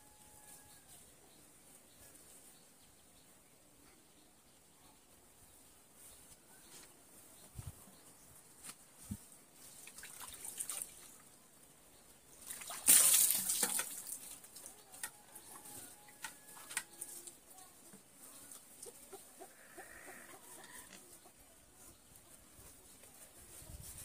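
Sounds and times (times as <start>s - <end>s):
water pouring and splashing: 9.7s - 11.2s, 12.4s - 15.6s
water dripping: 12.4s - 15.2s.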